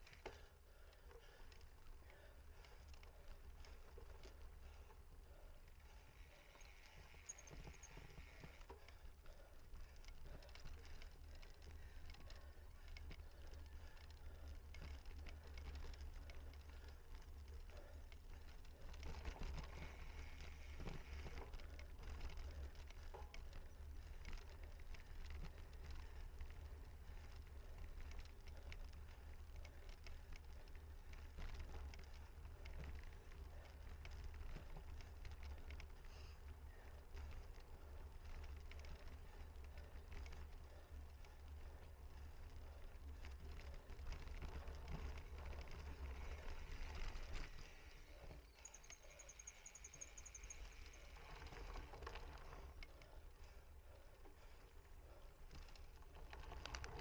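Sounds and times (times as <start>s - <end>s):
bike rattles and clicks: 0.0s - 57.0s.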